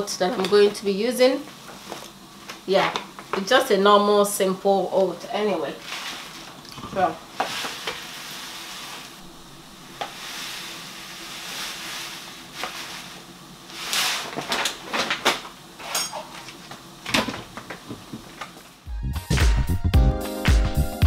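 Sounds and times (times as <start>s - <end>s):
oats pouring into a glass jug: 10.0s - 13.1s.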